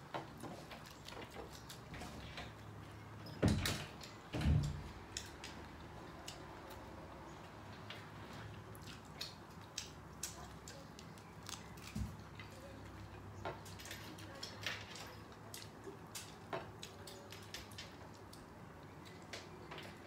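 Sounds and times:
person chewing and lip smacking: 0:08.6 - 0:12.4.

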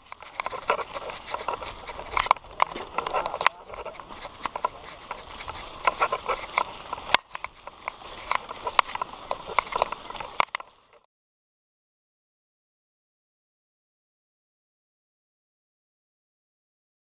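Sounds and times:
mountain bike rattling: 0:00.0 - 0:10.8
tyre and trail noise: 0:00.0 - 0:11.0.

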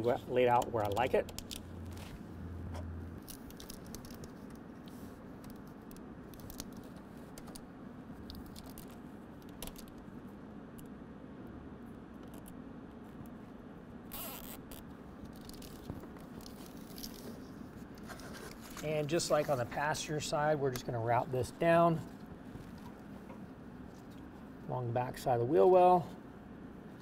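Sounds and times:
wiring harness scraping and clicking: 0:00.0 - 0:07.6, 0:14.1 - 0:19.8
low background hum: 0:00.0 - 0:27.0.

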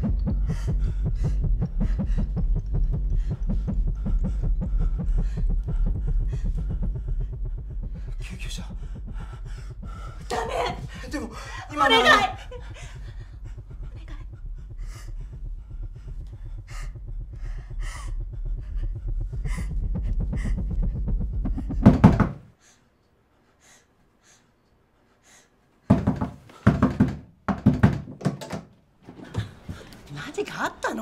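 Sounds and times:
low rumbling drone: 0:00.0 - 0:11.7, 0:12.3 - 0:22.1
heavy panting breaths: 0:00.0 - 0:21.8, 0:22.4 - 0:26.8, 0:29.1 - 0:30.6.

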